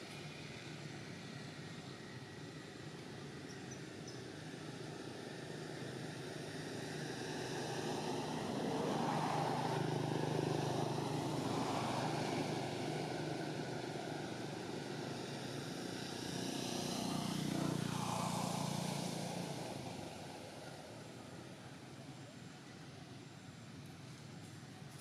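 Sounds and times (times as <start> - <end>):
passing motor engine drone: 5.0 - 21.8.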